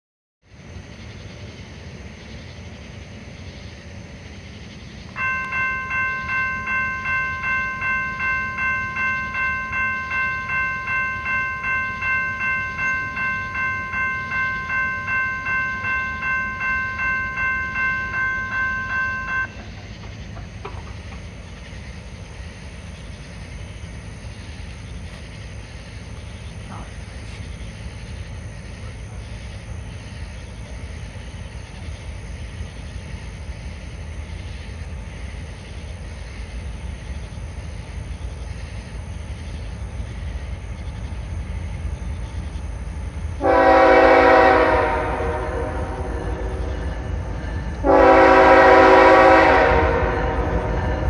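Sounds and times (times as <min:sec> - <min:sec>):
crossing bell ringing: 0:05.1 - 0:19.9, 0:43.0 - 0:51.0.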